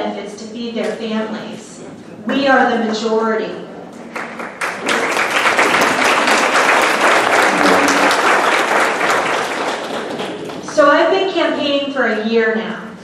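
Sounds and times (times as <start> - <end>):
audience applauding: 4.1 - 10.7.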